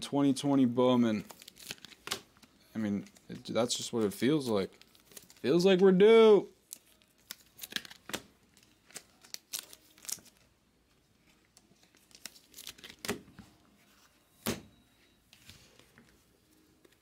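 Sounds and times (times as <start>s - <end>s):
cards and wrappers crinkling: 1.2s - 5.7s, 6.6s - 10.6s, 11.2s - 13.2s.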